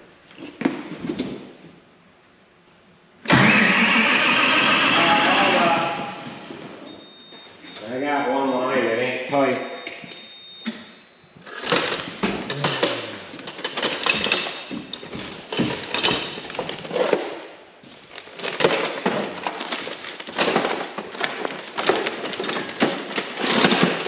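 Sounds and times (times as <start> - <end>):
metal tools clattering: 11.4 - 17.2, 21.8 - 24.0.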